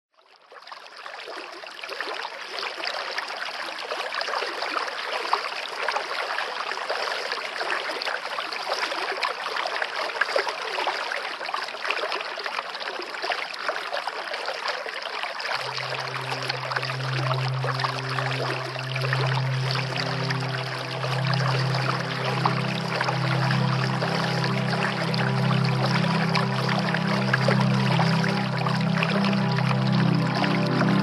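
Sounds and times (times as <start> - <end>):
stream babbling: 12.6 - 31.0.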